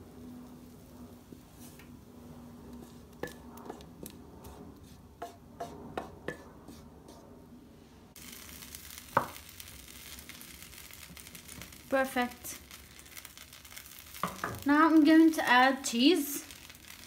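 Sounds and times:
wooden spoon scraping saucepan: 2.5s - 7.2s.

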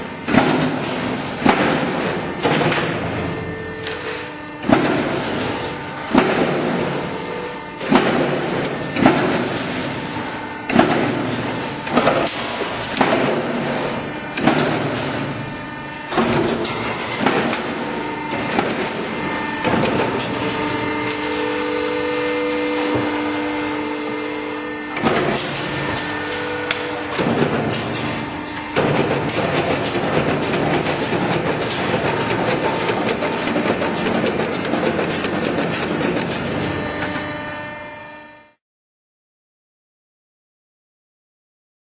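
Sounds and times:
press striking sheet metal: 0.0s - 37.6s
machine humming whine: 0.0s - 38.6s.

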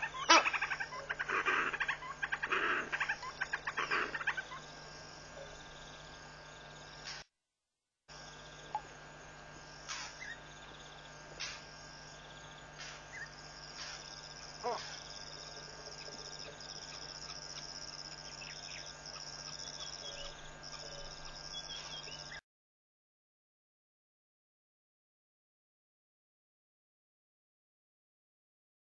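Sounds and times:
animal calls: 0.0s - 4.8s, 14.6s - 17.6s
night insects trilling: 0.0s - 7.2s, 8.1s - 22.4s.

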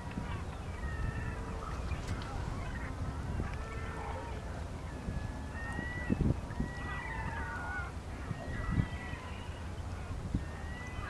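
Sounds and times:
gulls calling: 0.0s - 11.0s.

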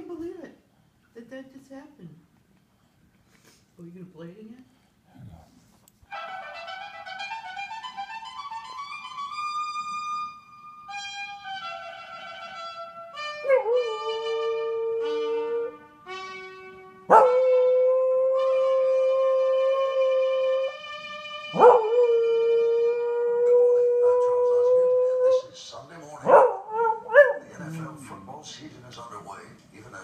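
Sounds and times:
trumpet music from television: 6.0s - 30.0s
dog howling: 13.4s - 15.8s, 17.1s - 20.8s, 21.5s - 25.5s, 26.2s - 27.5s.

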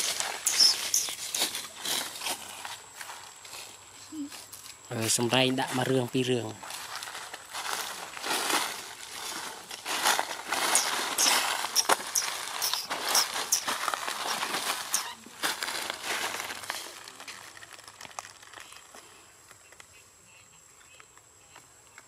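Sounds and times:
dry leaves crunching underfoot: 0.0s - 19.0s
short high chirps: 0.4s - 1.1s, 10.7s - 13.7s.

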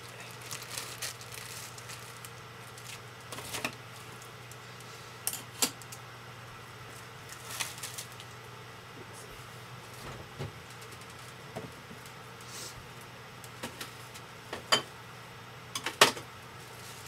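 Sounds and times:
items clattering on refrigerator shelves: 0.0s - 4.2s, 15.8s - 17.0s
steady low hum: 0.0s - 17.0s.

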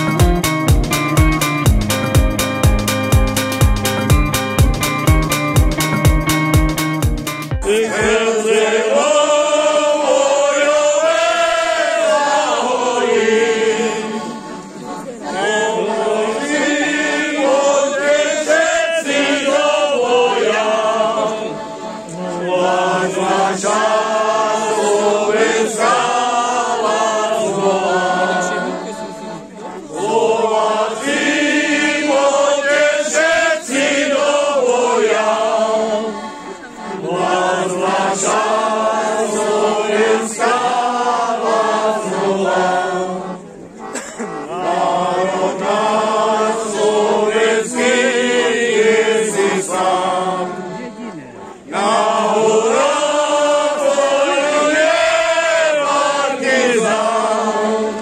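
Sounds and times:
button accordion: 0.0s - 9.7s, 10.4s - 58.0s
group singing folk song in unison: 7.5s - 58.0s.

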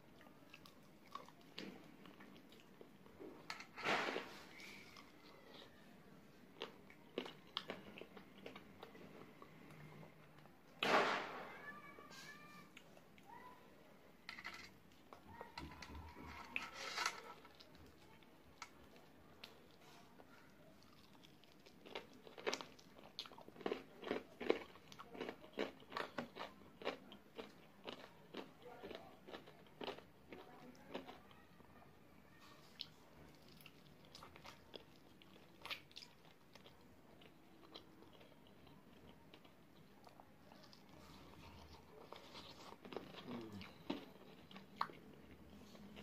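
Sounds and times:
person chewing crunchy chicken: 6.5s - 9.6s, 20.8s - 31.1s, 32.7s - 46.0s.

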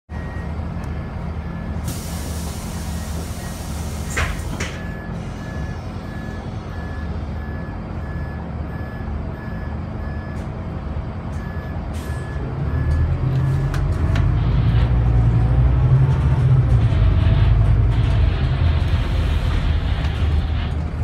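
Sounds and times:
bus warning beeper: 0.1s - 14.3s
diesel bus engine: 0.1s - 21.0s.

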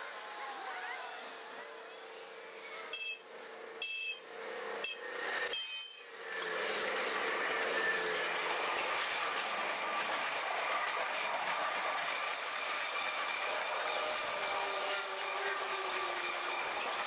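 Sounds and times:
high-pitched train horn blasts: 2.7s - 6.2s, 14.4s - 16.2s
train passing close by: 3.3s - 17.0s.

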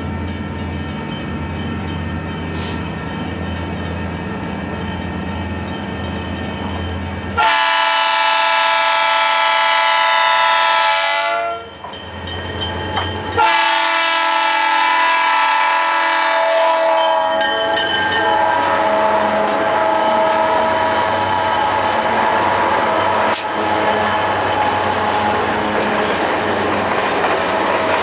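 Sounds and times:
locomotive air horn blasts: 7.4s - 11.7s, 13.4s - 24.1s
locomotive wheels passing: 16.9s - 28.0s
locomotive engine running: 17.3s - 28.0s.

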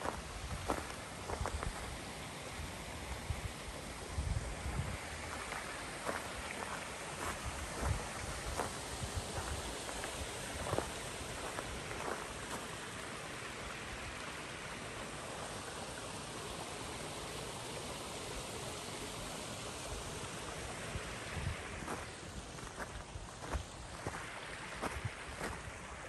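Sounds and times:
creek water rushing: 0.0s - 26.0s.

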